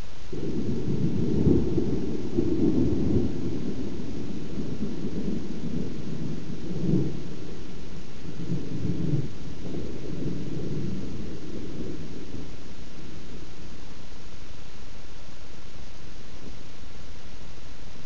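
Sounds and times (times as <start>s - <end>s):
rolling thunder: 0.3s - 14.4s.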